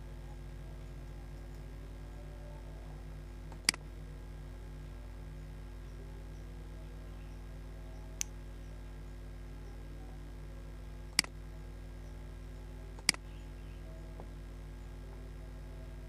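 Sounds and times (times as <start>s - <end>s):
low electrical hum: 0.0s - 16.0s
computer mouse clicks: 3.5s - 3.8s, 13.0s - 13.2s.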